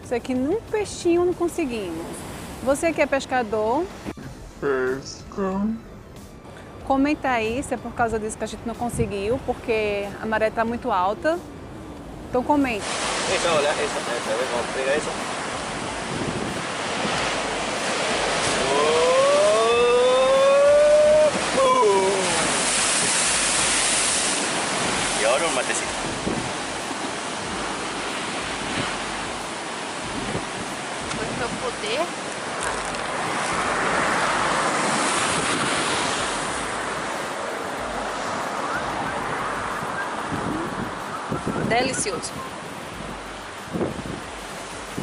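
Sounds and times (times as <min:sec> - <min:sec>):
wind buffeting microphone: 0:08.8 - 0:10.1, 0:15.1 - 0:45.0
sea surf breaking over rocks: 0:12.6 - 0:45.0
long rising pitched sound: 0:18.6 - 0:22.4.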